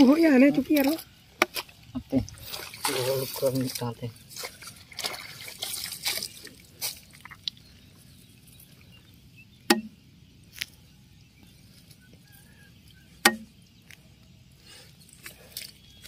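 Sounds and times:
sharp knocks: 9.7s - 10.0s, 13.2s - 13.5s.

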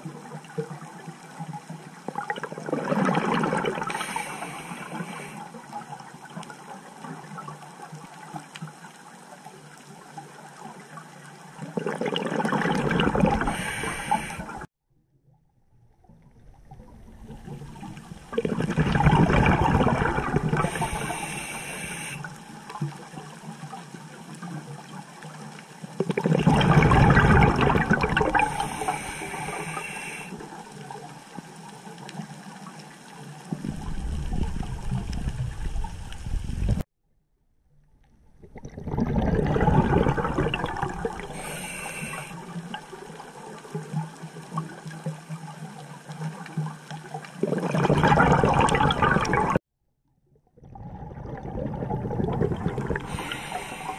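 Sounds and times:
underwater wash: 0.0s - 36.9s, 37.7s - 49.6s, 50.4s - 53.9s
diver exhaling bubbles: 2.2s - 5.4s, 11.7s - 14.7s, 16.6s - 22.2s, 26.0s - 30.5s, 33.5s - 36.8s, 38.4s - 43.0s, 47.4s - 49.6s, 50.6s - 53.9s
regulator hiss: 3.9s - 5.5s, 13.4s - 14.6s, 20.6s - 22.3s, 28.4s - 30.4s, 41.3s - 42.4s, 53.1s - 53.9s.

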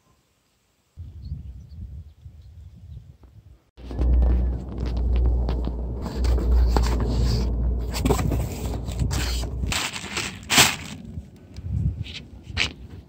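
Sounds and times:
low rumble: 3.8s - 11.8s
plastic crinkling: 9.7s - 11.0s.

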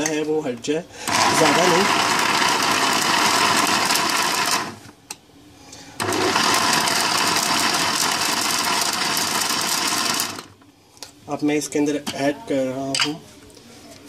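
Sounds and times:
jug blender running: 1.0s - 4.9s, 6.0s - 10.6s.

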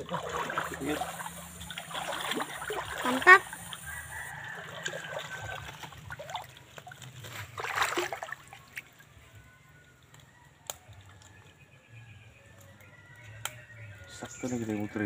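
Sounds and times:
wading through creek water: 0.0s - 9.4s.

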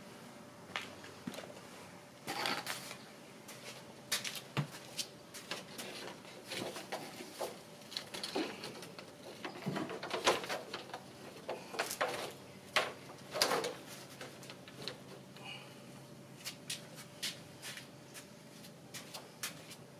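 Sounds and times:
plastic clacking and scraping on wood: 5.5s - 15.1s.

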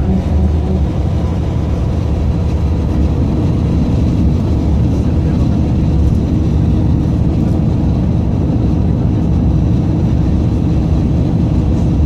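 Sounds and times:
bus engine and road noise: 0.0s - 12.0s.

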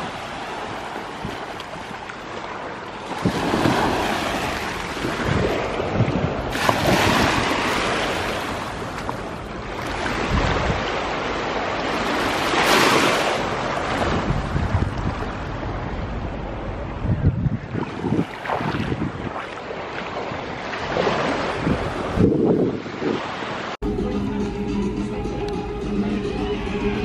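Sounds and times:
small waves washing on beach: 0.0s - 16.4s, 17.6s - 23.8s
wind rumbling on microphone: 3.1s - 23.7s.

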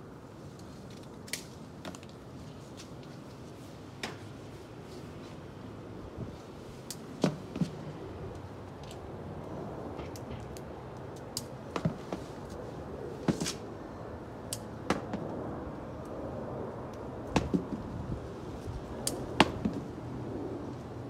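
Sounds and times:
fruit stems snapping: 0.9s - 2.2s, 19.0s - 19.7s.

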